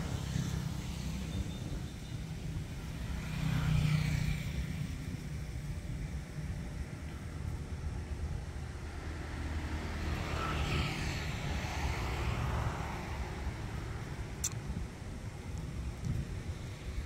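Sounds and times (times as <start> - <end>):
passing vehicle: 0.0 - 17.0
sharp click: 14.4 - 14.6.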